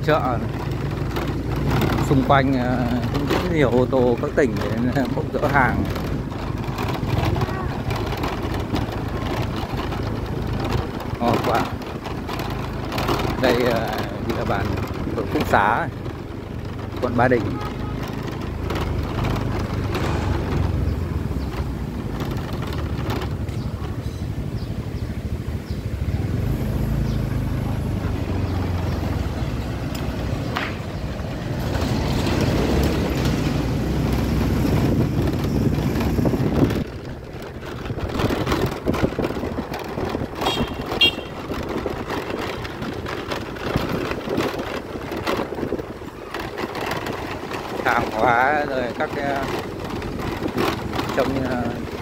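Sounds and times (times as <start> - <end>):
motorbikes passing: 0.0 - 52.0
street noise: 0.0 - 52.0
truck engines running: 0.0 - 52.0
scattered clicks: 29.0 - 52.0.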